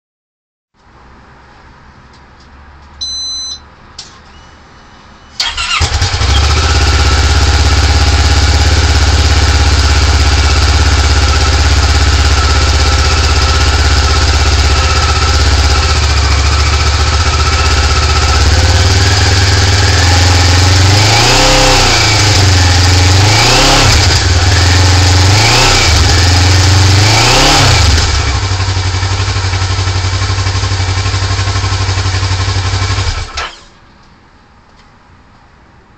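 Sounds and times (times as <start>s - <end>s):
motorcycle engine cranking: 5.4s - 8.0s
motorcycle engine revving: 5.4s - 33.6s
motorcycle engine idling: 5.5s - 20.8s, 28.0s - 33.4s.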